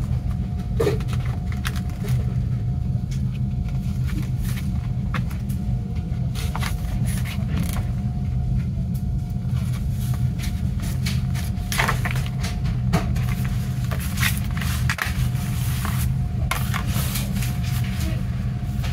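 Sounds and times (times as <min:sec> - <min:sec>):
steady low hum: 0:00.0 - 0:18.9
paper pages rustling: 0:03.2 - 0:05.4, 0:06.3 - 0:07.9, 0:09.6 - 0:18.1.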